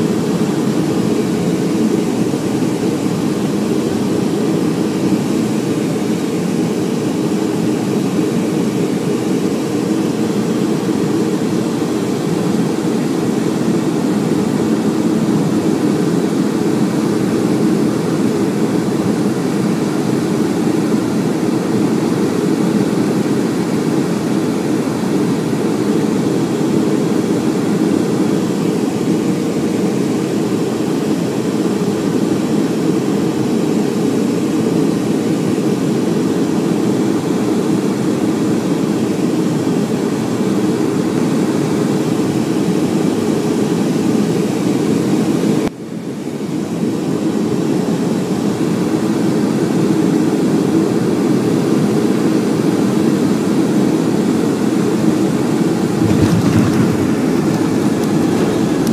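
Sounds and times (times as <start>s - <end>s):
airplane cabin rumble: 55.3s - 58.9s.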